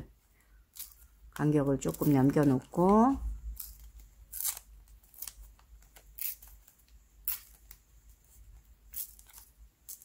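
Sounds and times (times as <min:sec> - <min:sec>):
paper being torn: 0:03.5 - 0:07.8.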